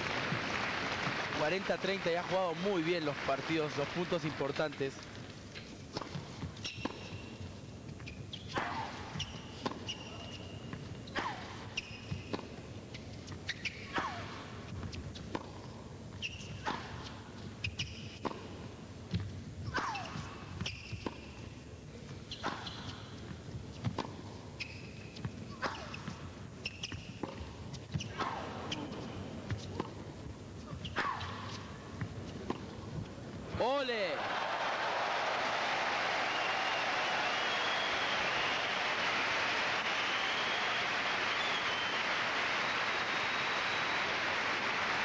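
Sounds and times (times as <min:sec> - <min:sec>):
shoe squeaks on court: 0:05.5 - 0:14.2, 0:14.8 - 0:16.8, 0:17.6 - 0:18.3, 0:19.7 - 0:21.6, 0:22.2 - 0:30.0.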